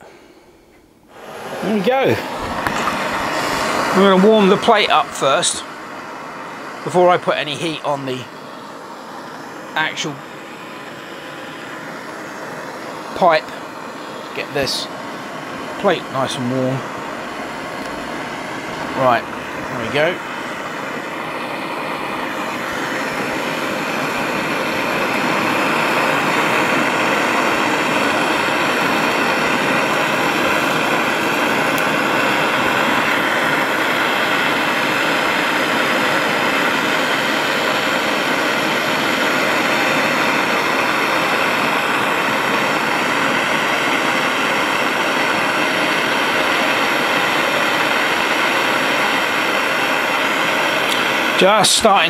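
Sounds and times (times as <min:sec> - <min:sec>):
blowtorch flame hissing: 0:00.0 - 0:52.0.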